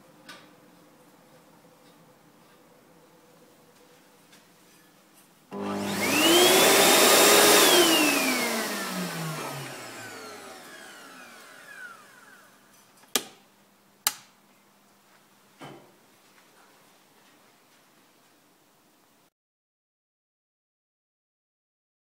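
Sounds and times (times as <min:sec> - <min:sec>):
hand dryer motor whining: 0:05.5 - 0:12.6
dryer switch clicks: 0:14.0 - 0:14.3.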